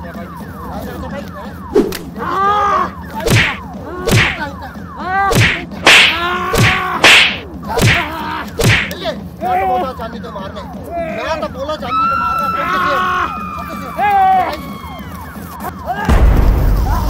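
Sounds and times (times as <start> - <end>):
wooden stick blows: 3.2 - 4.4, 5.3 - 9.0
person crying out: 6.1 - 7.0.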